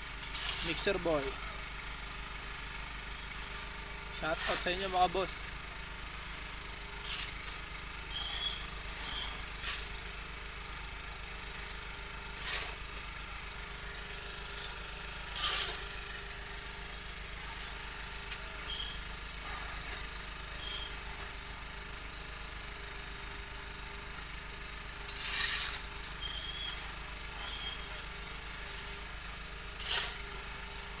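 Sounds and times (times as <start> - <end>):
rough scrapes: 0.3 - 0.9, 4.3 - 4.9, 12.3 - 12.8, 15.3 - 15.9, 25.1 - 27.8, 29.8 - 30.3.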